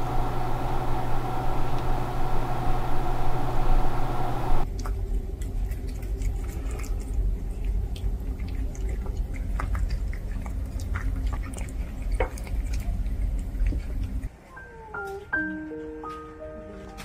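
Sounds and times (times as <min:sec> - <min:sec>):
steady low hum: 0:00.0 - 0:14.3
cat chewing and licking: 0:04.6 - 0:15.2.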